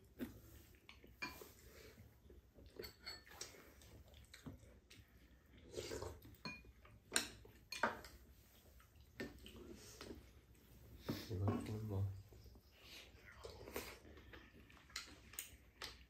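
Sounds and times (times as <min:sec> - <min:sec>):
chopsticks and spoons clinking on bowls: 0:01.0 - 0:01.9, 0:02.6 - 0:03.7, 0:06.2 - 0:08.2.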